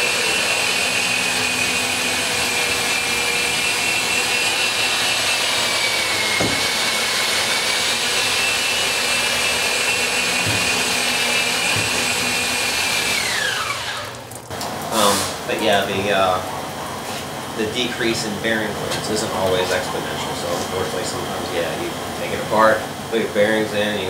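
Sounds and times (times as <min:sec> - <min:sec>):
honing machine high whine: 0:00.0 - 0:14.2, 0:14.9 - 0:23.4
faint knocks: 0:10.4 - 0:10.9.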